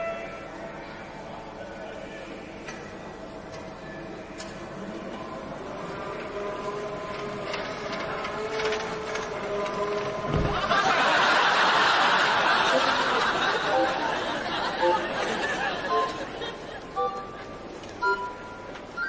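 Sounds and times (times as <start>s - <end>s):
audience laughter: 10.3s - 17.6s.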